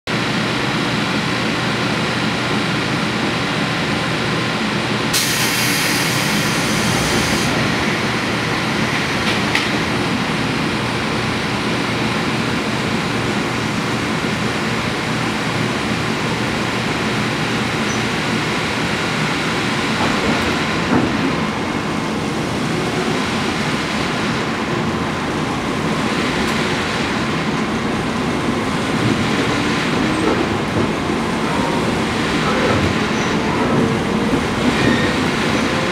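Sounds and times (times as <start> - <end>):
train interior rumble and hum: 0.1 - 35.9.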